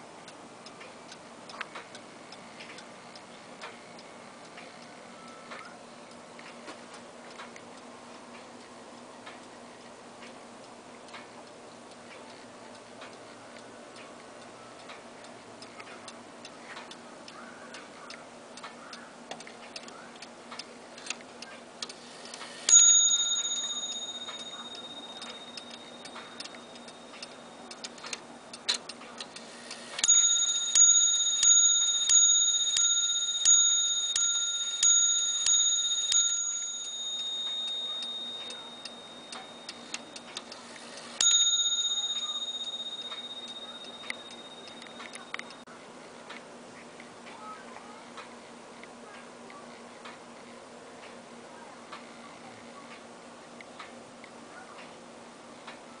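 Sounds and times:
mantle clock ticking: 0.0 - 46.4
clock ringing strikes: 22.3 - 28.3, 29.4 - 45.6.

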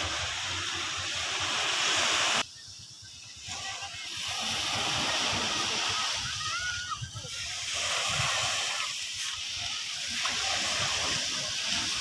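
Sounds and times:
small waves breaking on beach: 0.0 - 12.0.

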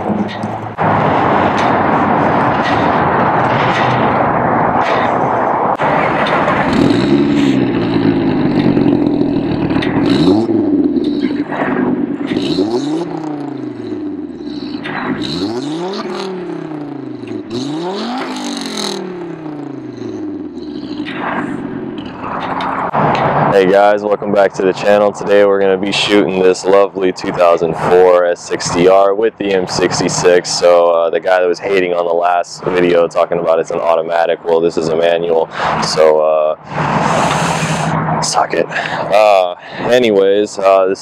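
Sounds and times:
loud rushing noise: 0.0 - 15.4, 16.1 - 23.8, 36.6 - 40.0
car engine revving: 0.0 - 23.8, 28.9 - 41.0.

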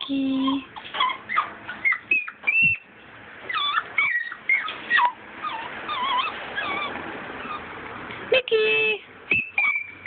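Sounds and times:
dogs whining and yipping: 0.0 - 7.8, 9.3 - 10.0.

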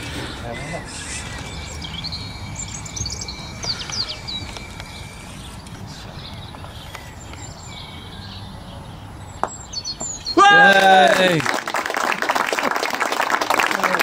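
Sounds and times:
bird chirps: 0.0 - 10.6
outdoor background noise: 0.0 - 14.0.

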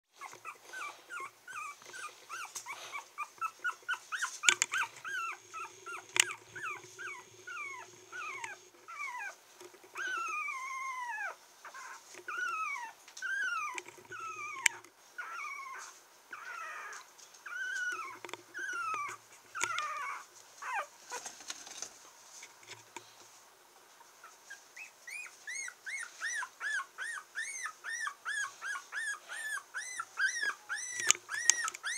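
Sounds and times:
puppy whining and squeaking: 0.1 - 20.9, 24.2 - 31.9.

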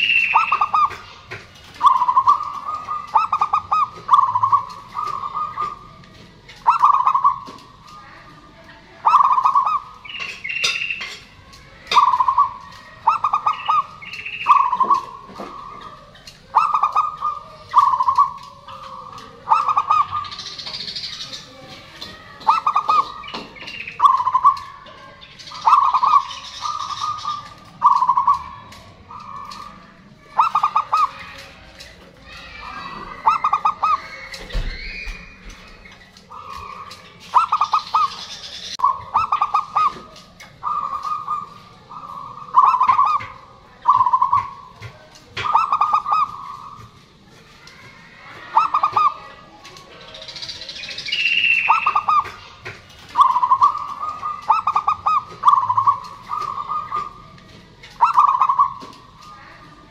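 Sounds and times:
dove cooing: 0.0 - 59.9
high bird chirps: 0.0 - 59.9.

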